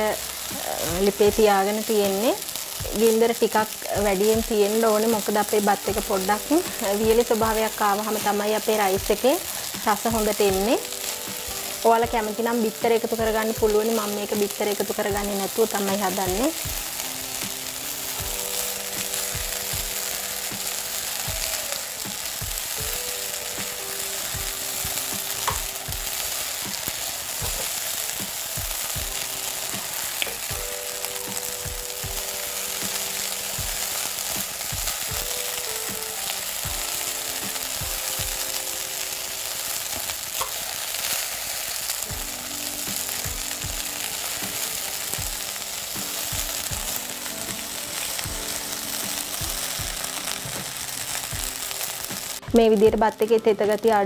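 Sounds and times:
rice sizzling in a pot: 0.0s - 54.0s.

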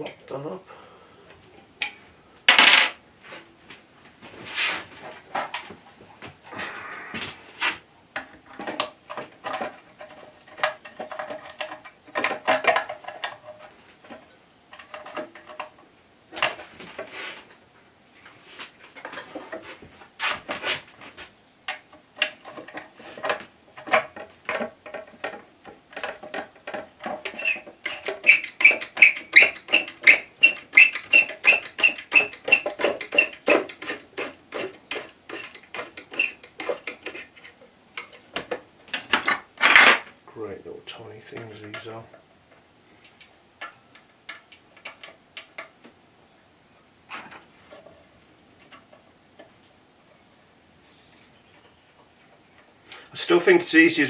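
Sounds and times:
metal clicks and scrapes: 21.7s - 40.1s.

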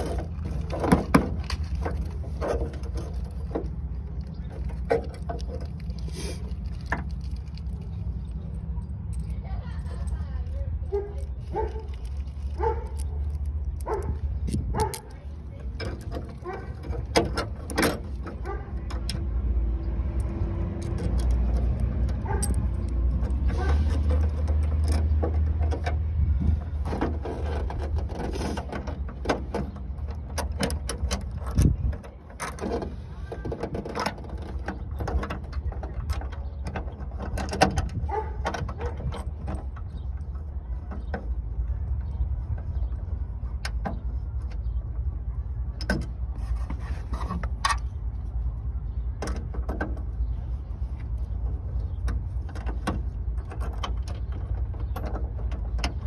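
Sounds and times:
metal tools clicking and clinking: 20.2s - 26.0s.

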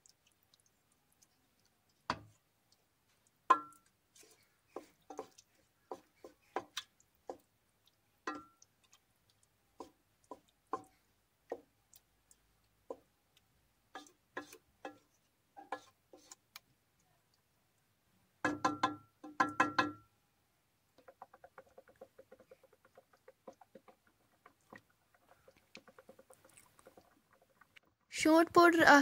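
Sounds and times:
wooden spatula knocking on pot: 2.1s - 2.3s, 3.5s - 3.7s, 4.7s - 7.5s, 18.4s - 20.1s, 21.0s - 27.1s.

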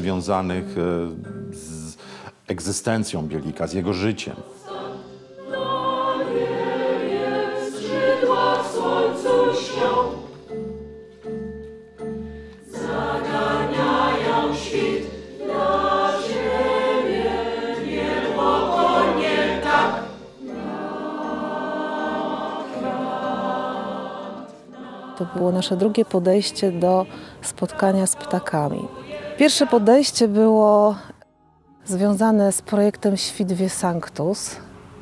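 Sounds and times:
mixed choir singing: 3.1s - 10.8s, 12.6s - 30.8s.

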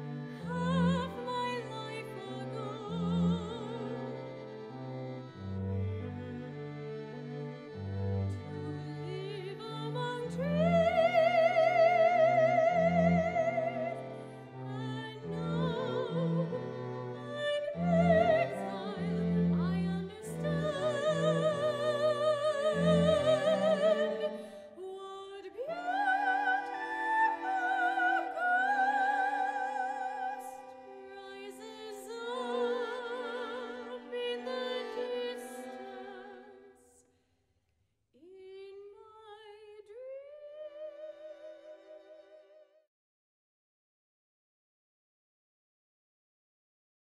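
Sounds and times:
operatic choral singing: 17.4s - 24.5s, 25.6s - 30.6s.

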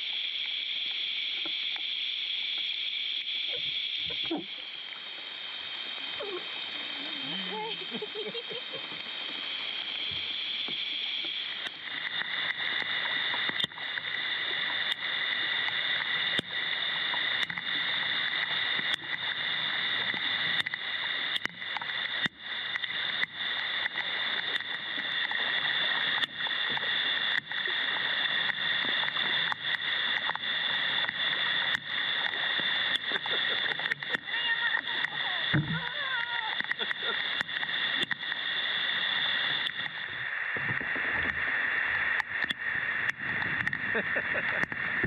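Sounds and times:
heavy rain on lake: 3.4s - 45.0s
raindrops ticking near microphone: 11.6s - 41.4s.

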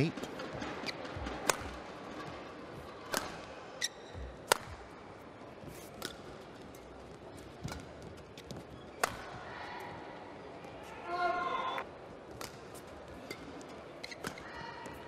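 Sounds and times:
racket hitting shuttlecock: 1.3s - 1.8s, 3.0s - 3.5s, 4.2s - 4.9s, 5.7s - 6.3s, 8.9s - 9.4s, 12.3s - 14.4s
shoe squeaking on court: 3.8s - 4.4s, 14.0s - 14.5s.

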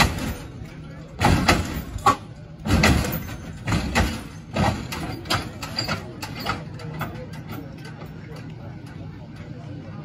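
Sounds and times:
car bouncing with heavy thumps: 1.2s - 7.2s.

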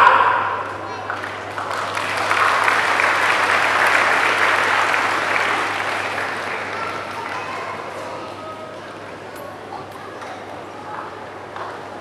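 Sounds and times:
large crowd applauding: 1.0s - 8.4s.

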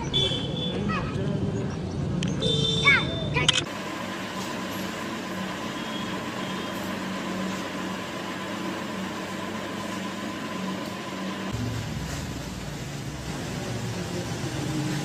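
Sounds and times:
mechanical hum: 3.6s - 15.0s.

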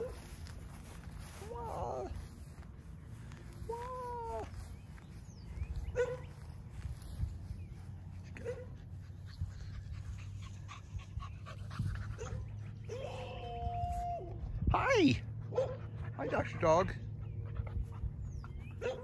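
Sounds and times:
dog yelps: 6.0s - 6.3s, 18.8s - 19.0s.

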